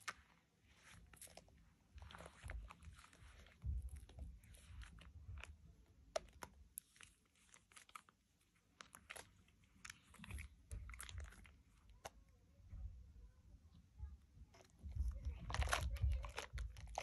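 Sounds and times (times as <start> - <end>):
soap lather squelching: 0.0 - 12.3.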